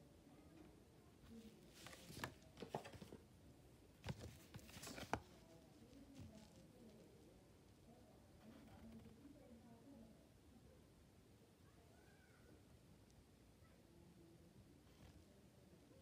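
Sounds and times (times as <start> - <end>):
paper crackling: 1.7 - 3.2, 4.1 - 6.6.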